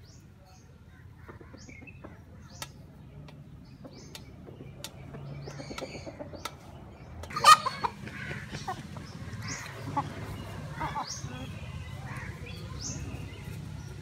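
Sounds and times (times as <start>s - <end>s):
loud hen call: 7.3s - 8.4s.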